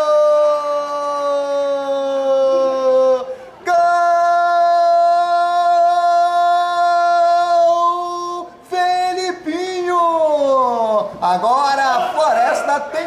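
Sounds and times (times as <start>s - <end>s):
commentator shouting goal cry: 11.4s - 13.0s.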